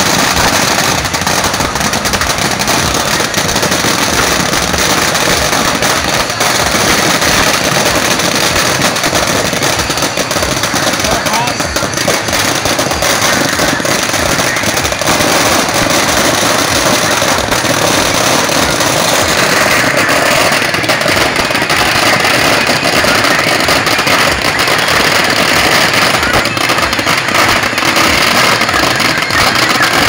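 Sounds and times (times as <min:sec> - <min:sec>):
firecrackers crackling: 0:00.0 - 0:30.0.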